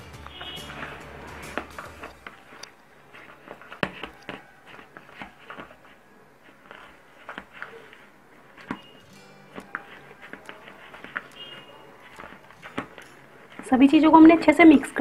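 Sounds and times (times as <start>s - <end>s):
soft dough squishing: 0.0s - 15.0s.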